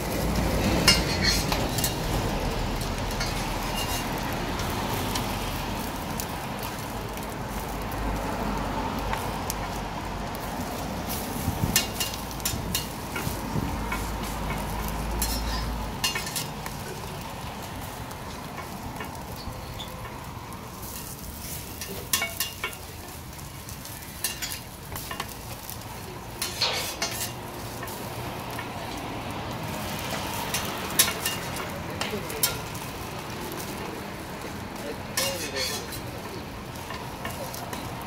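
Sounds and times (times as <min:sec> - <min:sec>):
food sizzling on a griddle: 0:00.0 - 0:38.0
metal spatula clinking on griddle: 0:00.8 - 0:02.1, 0:03.0 - 0:04.2, 0:11.7 - 0:17.0, 0:20.8 - 0:23.2, 0:24.2 - 0:25.4, 0:26.4 - 0:28.8, 0:30.4 - 0:32.8, 0:35.1 - 0:37.9.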